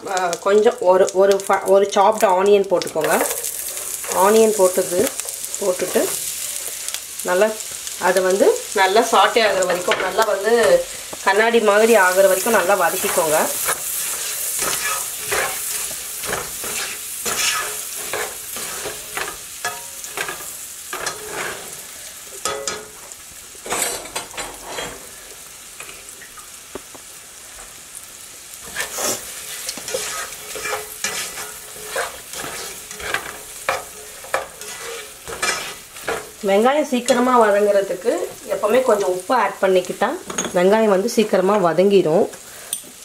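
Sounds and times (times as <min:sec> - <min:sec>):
onion sizzling in a pan: 0:00.0 - 0:43.0
spatula scraping a pan: 0:11.9 - 0:22.7, 0:23.7 - 0:25.1, 0:28.6 - 0:36.4.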